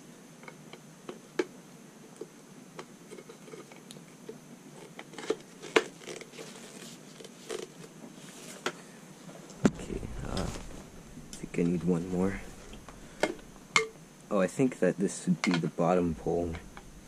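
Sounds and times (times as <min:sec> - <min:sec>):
plastic poles clicking and knocking: 0:12.6 - 0:14.0, 0:15.4 - 0:15.7.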